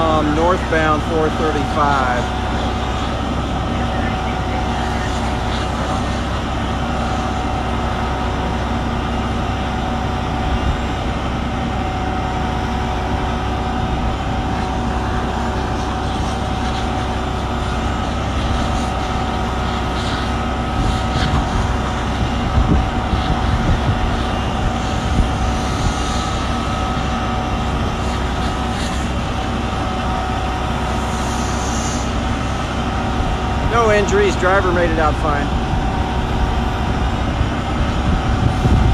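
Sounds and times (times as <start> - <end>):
fire engine pump running: 0.0 - 38.9
water spraying: 14.4 - 22.2.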